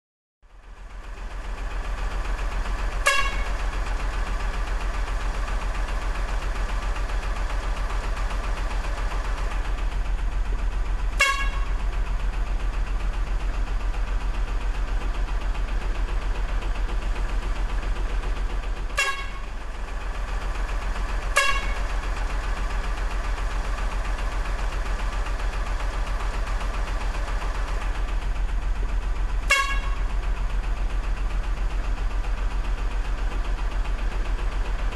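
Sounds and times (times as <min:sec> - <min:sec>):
truck engine rumbling: 0:00.5 - 0:34.9
horn honks: 0:03.0 - 0:03.6, 0:11.2 - 0:11.8, 0:18.9 - 0:19.5, 0:21.3 - 0:21.9, 0:29.4 - 0:30.1.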